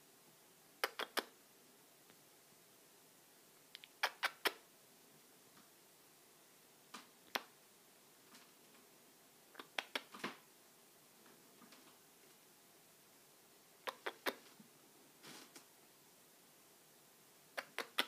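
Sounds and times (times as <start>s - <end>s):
lip-smacking kisses: 0.8s - 1.4s, 3.7s - 4.6s, 7.3s - 7.5s, 9.6s - 10.1s, 13.8s - 14.4s, 17.6s - 18.0s.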